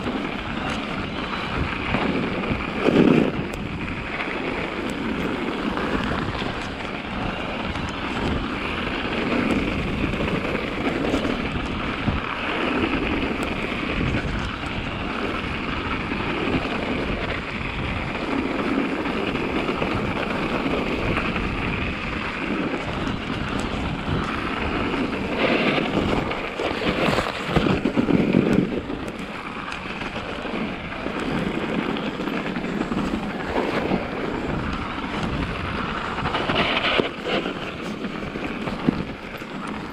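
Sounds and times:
bike tyres rolling over snow: 0.0 - 39.9
wind noise on microphone: 0.0 - 39.9.

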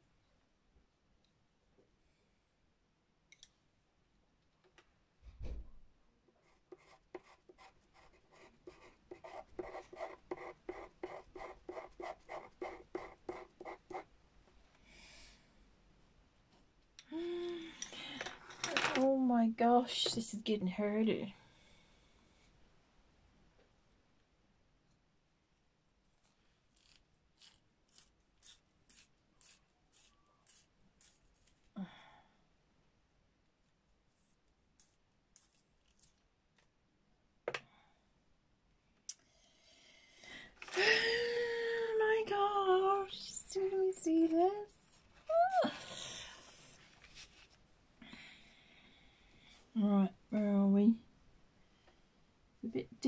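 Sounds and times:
pencil scratching on paper: 6.4 - 14.1
person sighing: 17.0 - 18.3, 40.6 - 42.0, 45.3 - 46.6.

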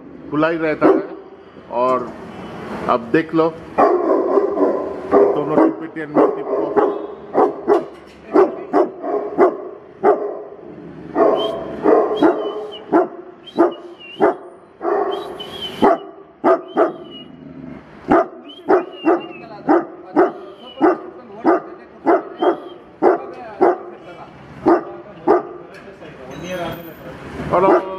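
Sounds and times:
dogs barking loudly: 0.7 - 1.4, 3.6 - 25.7, 27.6 - 27.9
dog whining: 11.2 - 17.7.

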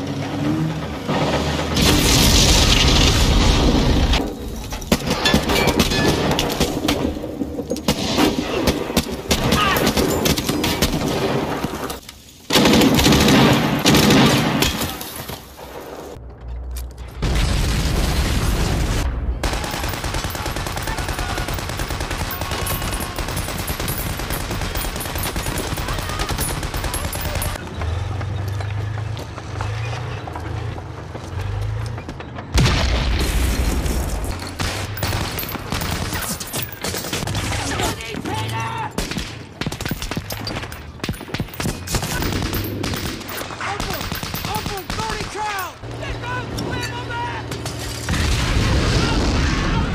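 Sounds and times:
rifle and machine-gun fire: 12.5 - 15.0, 17.4 - 27.6, 34.3 - 38.0, 39.0 - 46.0
loud blasts: 47.4 - 49.9.

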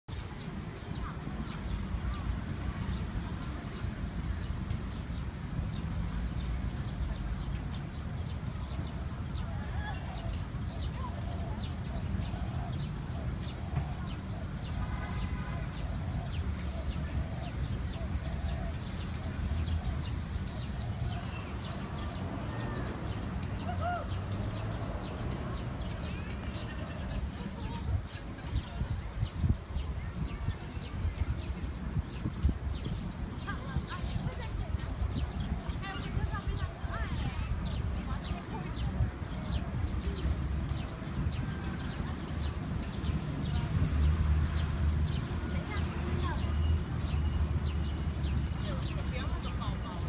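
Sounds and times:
small birds chirping: 0.1 - 50.0
wind rumble on microphone: 0.3 - 46.4.

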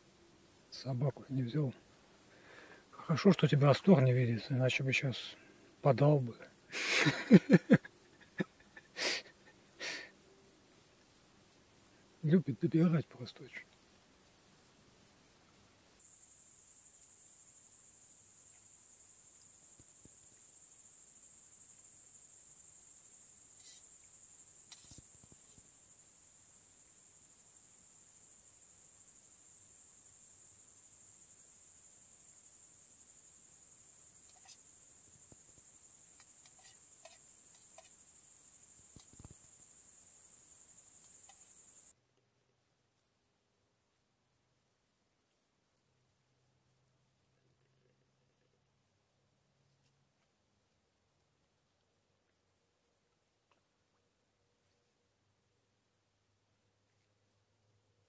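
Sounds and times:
crickets trilling: 0.0 - 42.0
faint ticks: 18.4 - 20.6, 23.4 - 25.9, 34.1 - 42.3, 53.1 - 54.8.

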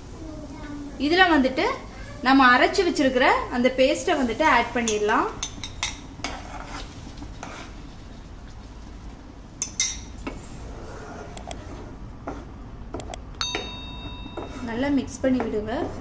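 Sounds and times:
low steady hum: 2.6 - 16.0
spatula scraping in a pan: 4.0 - 9.0, 9.6 - 12.6
short ringing tone: 13.4 - 14.7
metal spoon scraping glass bowl: 14.1 - 14.8.

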